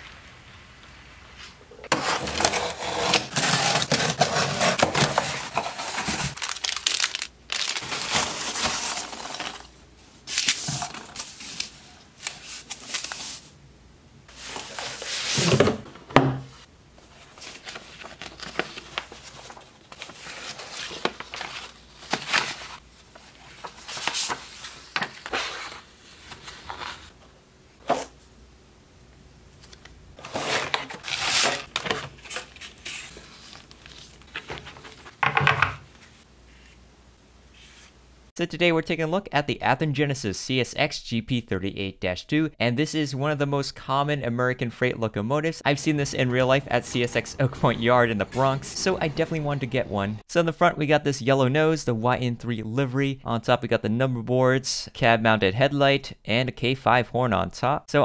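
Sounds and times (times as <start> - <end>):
cardboard and paper scraping: 1.9 - 9.7, 14.3 - 15.8, 17.0 - 27.2, 30.2 - 35.2
tape tearing rustles: 1.9 - 9.7, 29.6 - 35.2
box cutter slitting tape: 2.0 - 5.2
plastic case crinkling: 3.2 - 9.7.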